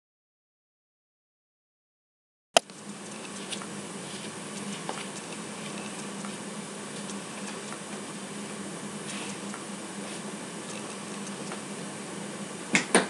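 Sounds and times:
vacuum cleaner running: 2.8 - 13.0.

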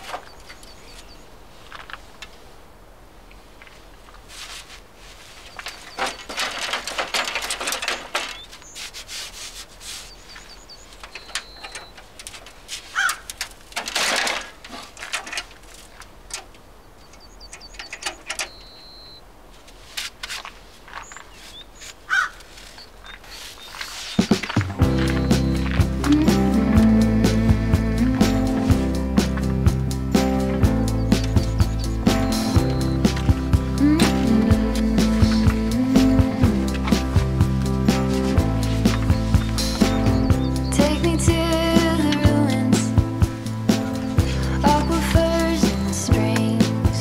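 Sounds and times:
sheet metal clatter and scraping: 5.6 - 8.6, 11.0 - 16.5
bird chirping and whistling: 10.1 - 12.0, 17.2 - 19.2, 22.8 - 26.4, 30.8 - 34.2, 38.7 - 41.3.

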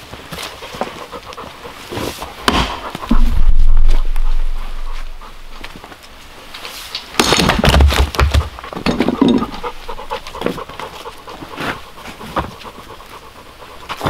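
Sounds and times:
axe splitting firewood: 2.4 - 3.4, 7.2 - 9.7
split wood clattering: 7.0 - 9.7.

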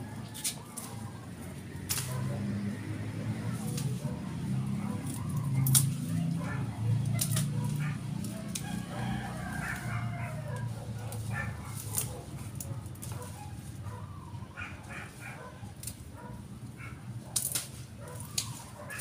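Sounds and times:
rooster crowing: 8.4 - 11.4.

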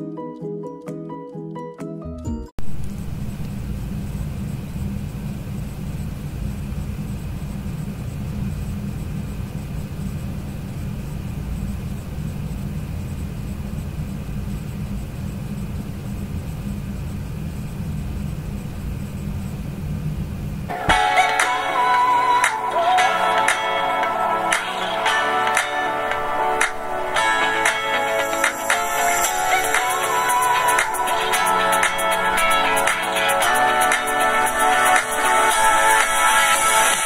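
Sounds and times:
steady low rumble: 2.6 - 20.7.

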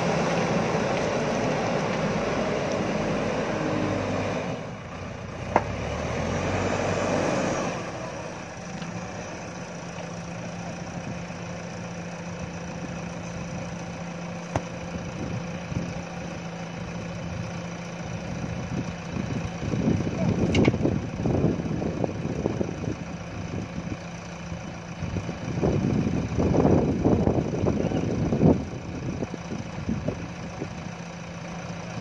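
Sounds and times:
diesel engine working: 0.0 - 32.0.

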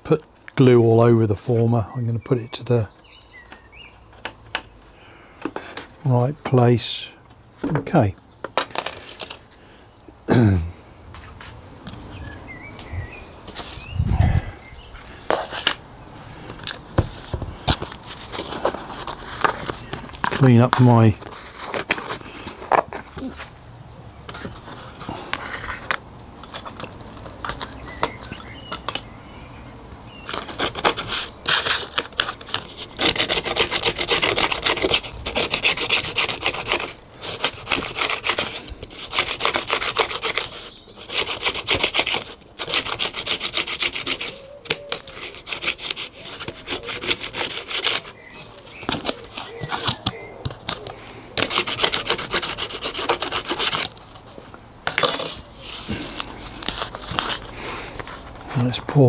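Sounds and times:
wood being sanded by hand: 30.3 - 50.2, 51.3 - 54.0.

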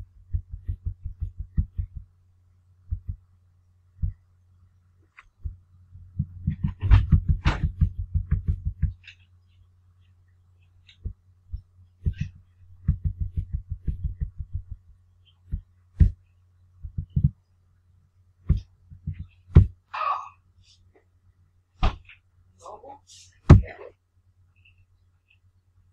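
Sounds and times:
low electrical hum: 0.0 - 25.9.

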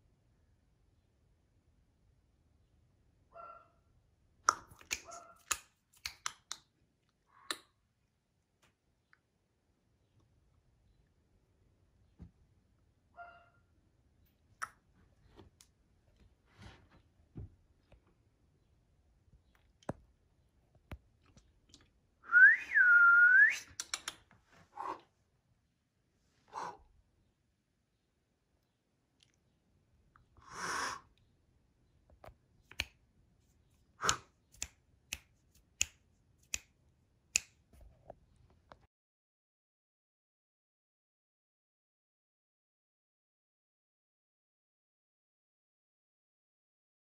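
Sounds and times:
person whistling: 22.3 - 23.8
sharp clicks: 23.7 - 24.3.

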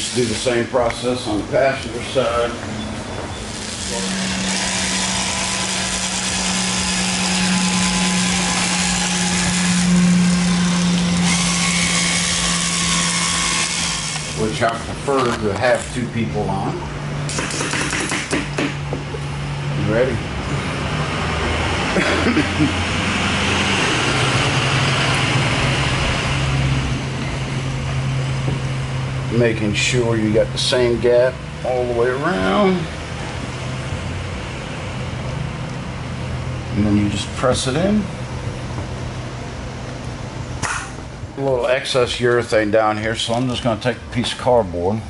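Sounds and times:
mechanical hum with hiss: 0.0 - 45.0
caulking gun motor humming: 3.5 - 14.8.

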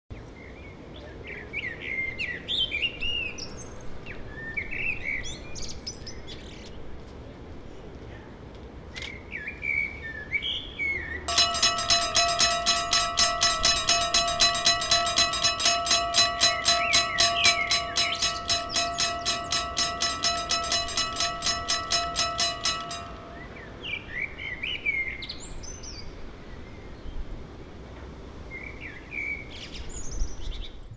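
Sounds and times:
railroad crossing bell ringing: 11.3 - 23.7.

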